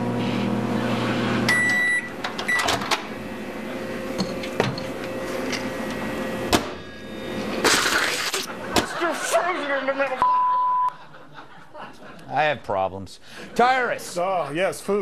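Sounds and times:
microwave oven humming: 0.0s - 11.5s
microwave high beeps: 1.5s - 2.8s, 6.8s - 7.5s, 10.2s - 11.0s.

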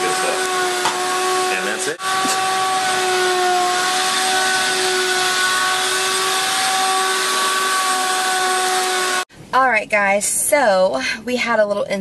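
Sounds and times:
shop vacuum running: 0.0s - 9.3s.

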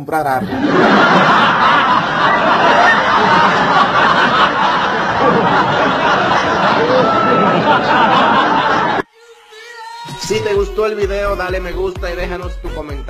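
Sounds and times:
crowd laughing and chattering: 0.4s - 9.1s.

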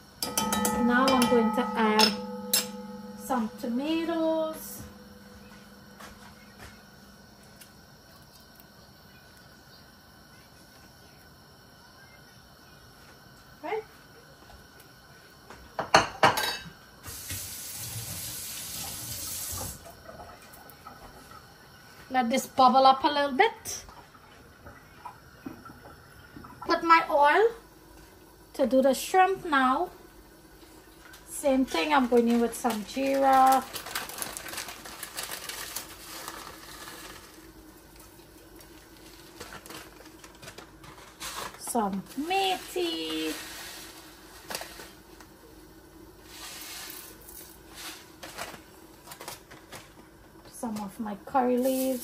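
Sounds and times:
steady hiss: 0.0s - 19.9s, 26.7s - 49.0s
seeds crackling in hot oil: 0.0s - 52.0s
cookware and utensils clinking: 0.2s - 7.2s, 15.8s - 16.8s.

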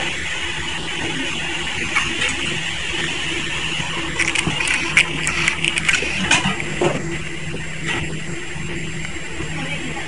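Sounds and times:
machine humming: 0.0s - 10.0s
sharp clicks and crackles: 4.1s - 6.7s.

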